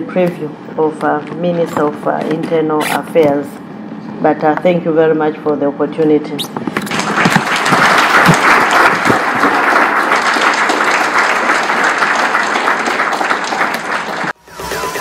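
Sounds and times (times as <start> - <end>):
audience applauding: 6.8 - 14.4.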